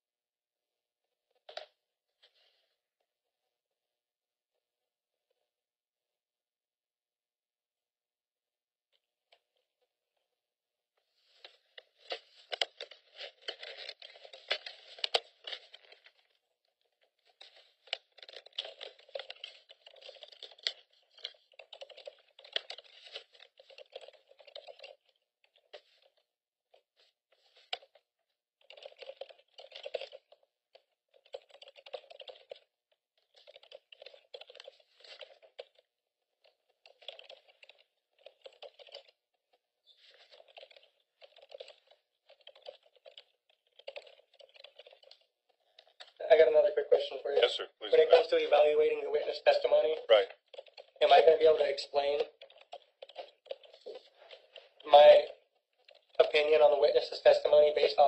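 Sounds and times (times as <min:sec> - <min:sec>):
typing on computer keyboard: 0:12.1 - 0:16.5, 0:17.2 - 0:28.0, 0:28.6 - 0:46.2, 0:48.1 - 0:58.0.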